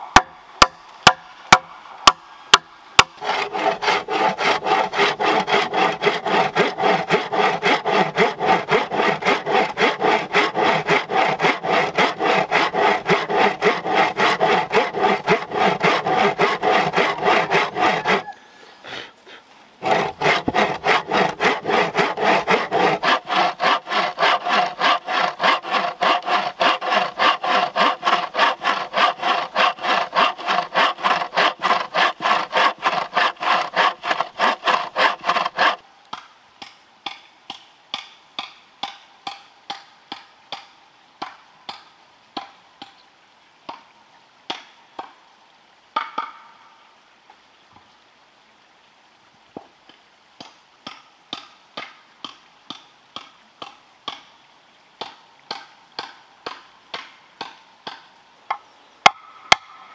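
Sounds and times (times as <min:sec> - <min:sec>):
hand saw cutting bamboo: 0:00.1 - 0:18.3, 0:19.8 - 0:35.8, 0:55.0 - 0:58.0.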